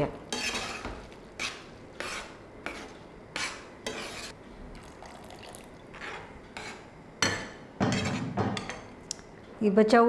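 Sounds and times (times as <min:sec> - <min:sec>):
metal spoon scraping a pan: 0:00.3 - 0:04.4, 0:05.9 - 0:06.9.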